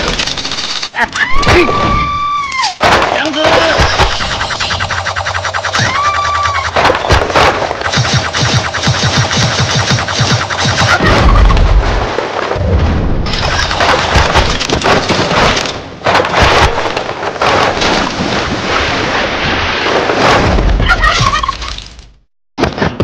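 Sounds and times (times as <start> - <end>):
heavy low booms: 11.0 - 13.4.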